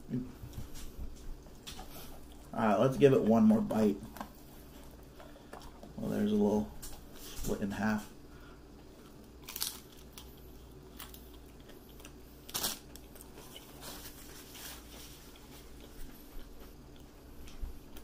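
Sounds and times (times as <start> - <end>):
quiet chewing: 0.0 - 7.6, 8.3 - 18.0
taco shell crunching: 8.8 - 18.0.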